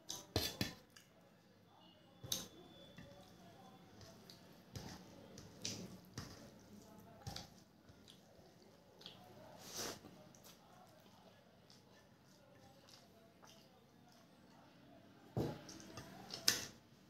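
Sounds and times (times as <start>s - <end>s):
hand mixing wet rice: 2.2s - 14.8s.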